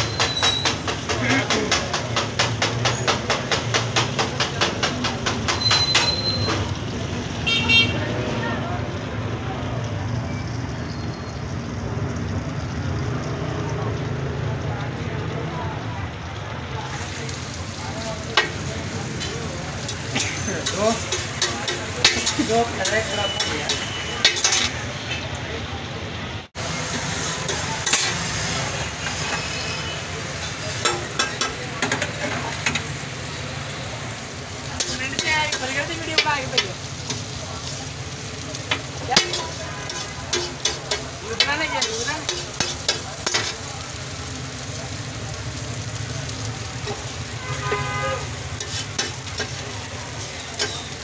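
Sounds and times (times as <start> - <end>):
patties sizzling on a griddle: 0.0 - 51.0
metal utensil clicking on griddle: 18.2 - 24.8, 27.5 - 28.3, 30.8 - 32.9, 34.7 - 37.8, 38.4 - 43.7, 48.5 - 51.0.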